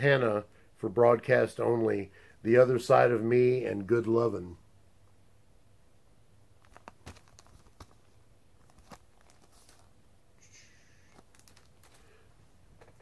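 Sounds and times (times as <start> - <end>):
plastic rustle: 6.6 - 10.0, 11.0 - 13.0
plastic sleeve crinkling: 6.6 - 10.0, 11.0 - 12.2.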